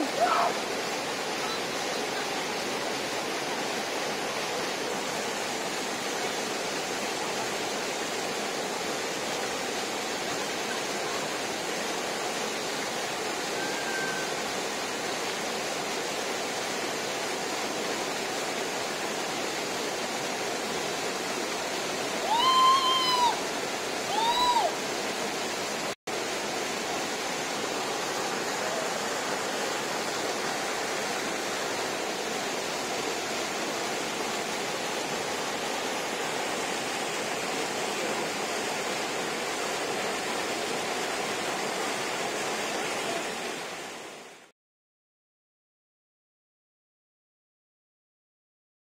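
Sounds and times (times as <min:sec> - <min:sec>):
waterfall rushing: 0:00.0 - 0:44.5
short high-pitched calls: 0:13.5 - 0:14.4.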